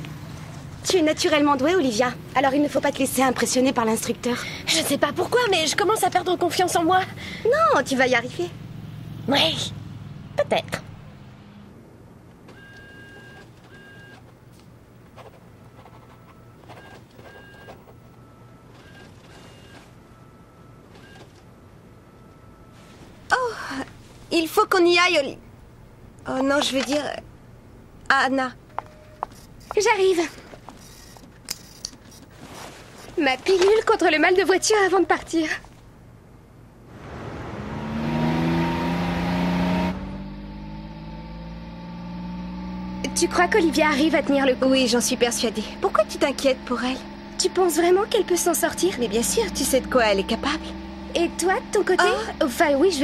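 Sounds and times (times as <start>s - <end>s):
low steady hum: 0.0s - 38.0s, 38.8s - 53.0s
car engine and road noise: 0.0s - 53.0s
printer whirring whine: 15.6s - 22.8s.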